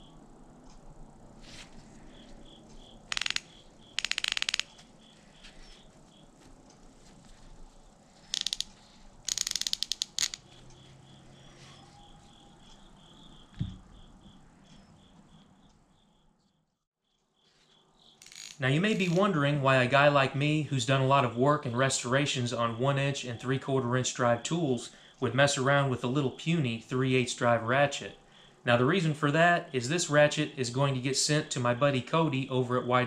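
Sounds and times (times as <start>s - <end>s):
ratchet pawl clicking: 3.1s - 4.9s, 8.3s - 10.8s, 18.2s - 19.2s.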